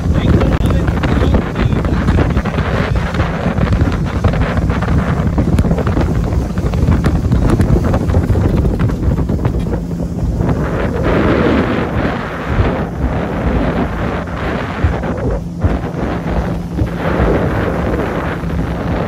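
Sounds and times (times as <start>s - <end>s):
wind buffeting microphone: 0.0s - 19.0s.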